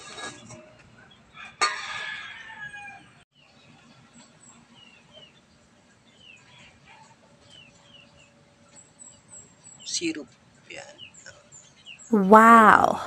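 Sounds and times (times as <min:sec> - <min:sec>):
low background noise: 0:02.3 - 0:13.0
small birds chirping: 0:03.4 - 0:12.3.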